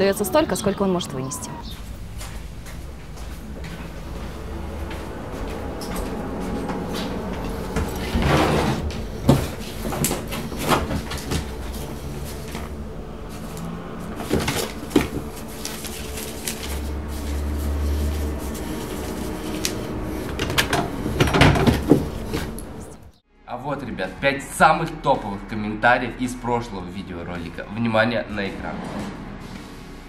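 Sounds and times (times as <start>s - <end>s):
rustling of bedding and paper: 8.0s - 20.6s.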